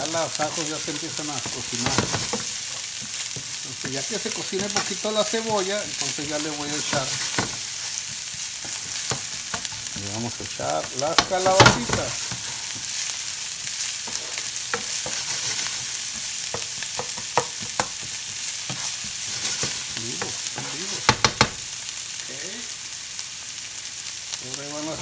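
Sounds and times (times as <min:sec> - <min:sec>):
onion sizzling in oil: 0:00.0 - 0:25.0
spoon knocking on pan: 0:04.6 - 0:12.9, 0:14.0 - 0:15.4, 0:16.1 - 0:21.6.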